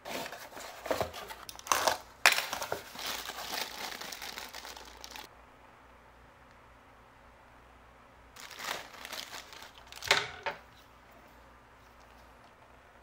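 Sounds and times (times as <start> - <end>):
plastic bag crinkling: 1.4 - 5.3, 8.4 - 10.6.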